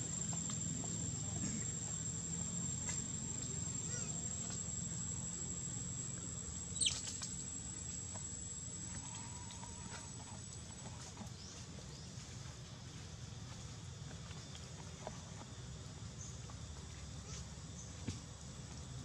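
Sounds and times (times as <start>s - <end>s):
high-pitched insect drone: 0.0s - 11.2s.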